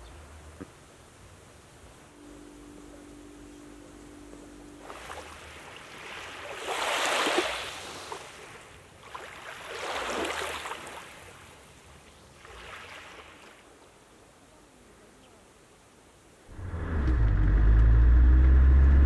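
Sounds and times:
small waves washing on sand: 4.8s - 14.1s.

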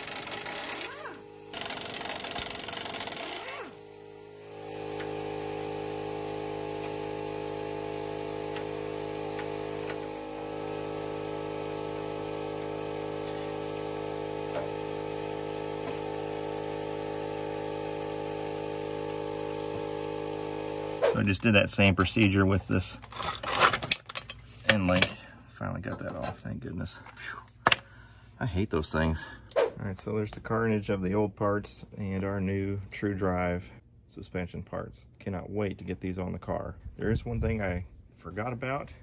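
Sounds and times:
impact wrench rattling: 0.0s - 3.8s, 13.2s - 13.6s
hum of held tones: 0.0s - 21.1s.

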